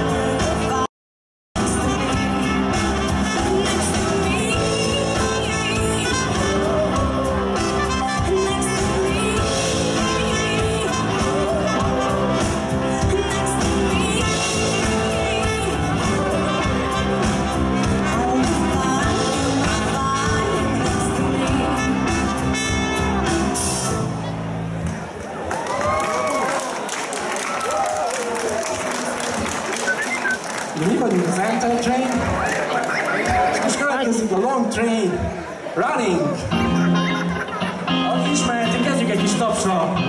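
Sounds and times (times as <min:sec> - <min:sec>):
live band playing: 0:00.0 - 0:00.9, 0:01.6 - 0:24.4, 0:29.1 - 0:31.4, 0:36.0 - 0:40.0
woman singing: 0:00.0 - 0:00.9, 0:01.6 - 0:23.9
trumpet: 0:01.6 - 0:24.2.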